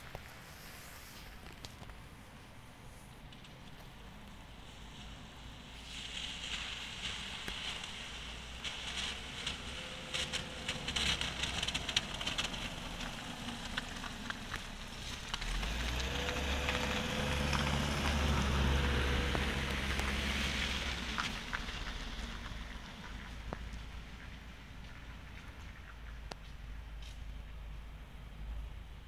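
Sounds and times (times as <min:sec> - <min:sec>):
bus diesel engine rumble: 0:00.0 - 0:29.0
light crackling and ticking: 0:06.2 - 0:27.4.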